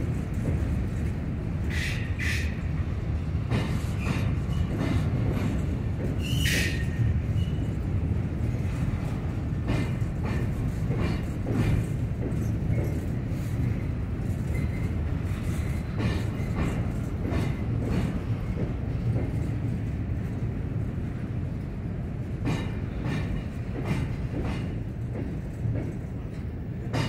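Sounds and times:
freight train rumble: 0:00.0 - 0:27.0
wheels clicking over rail joints: 0:03.4 - 0:20.8.

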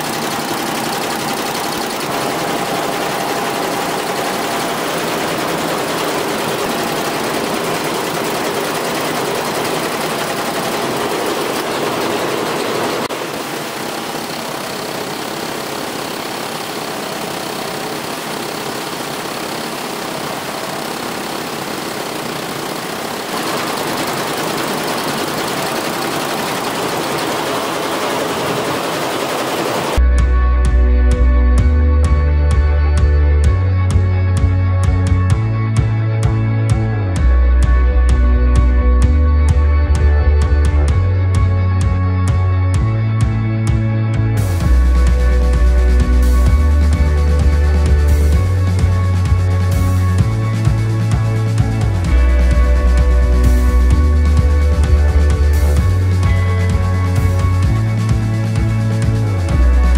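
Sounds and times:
embroidery machine clattering: 0:00.0 - 0:30.0.

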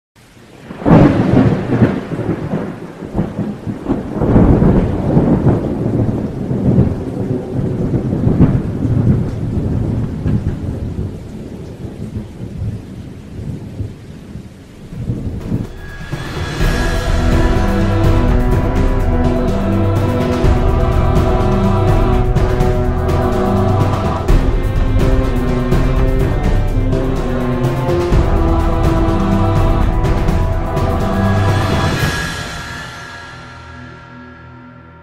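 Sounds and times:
rain: 0:00.2 - 0:34.4
thunder rolling: 0:00.4 - 0:35.0
music: 0:15.0 - 0:35.0.

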